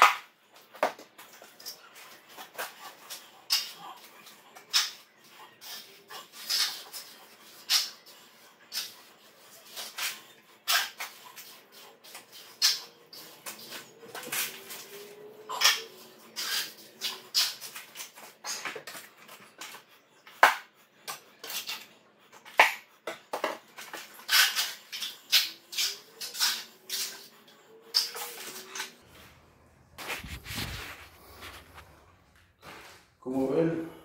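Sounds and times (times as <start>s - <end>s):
trowel scraping wet concrete: 5.6s - 18.7s.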